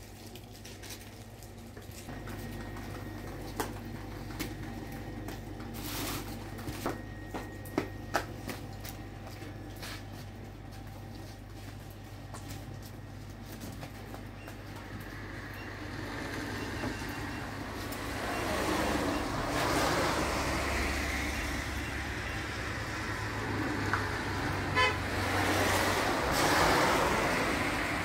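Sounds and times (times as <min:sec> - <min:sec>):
vehicle engine running: 0:02.1 - 0:28.0
road noise: 0:13.9 - 0:28.0
short horn toot: 0:24.7 - 0:25.1.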